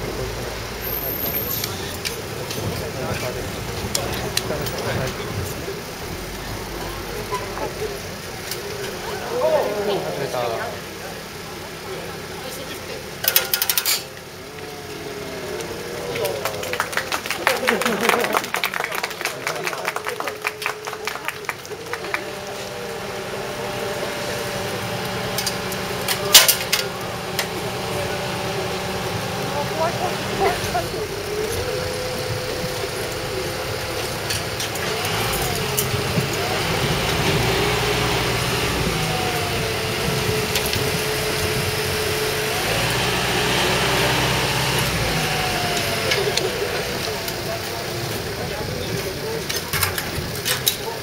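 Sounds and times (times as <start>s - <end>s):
crane engine running: 0.0s - 51.0s
sharp metal clanks: 13.2s - 14.2s.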